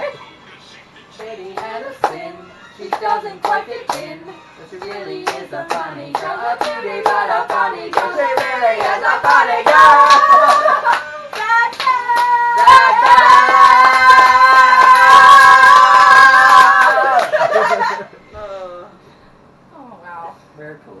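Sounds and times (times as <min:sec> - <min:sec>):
people singing together: 0:01.1 - 0:11.2
hands clapping a beat: 0:01.2 - 0:02.2, 0:02.8 - 0:04.1, 0:04.8 - 0:17.4.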